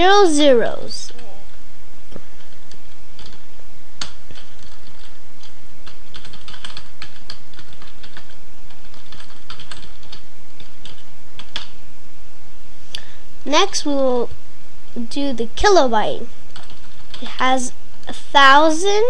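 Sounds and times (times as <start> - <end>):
computer keyboard typing: 2.4 - 3.4, 4.0 - 11.7, 16.5 - 17.4.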